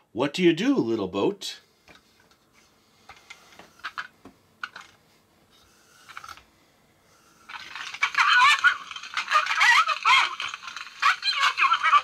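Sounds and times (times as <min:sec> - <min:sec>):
plastic toy clicks and scrapes: 0:06.0 - 0:06.4, 0:07.4 - 0:12.0
needle scratching record: 0:07.9 - 0:12.0.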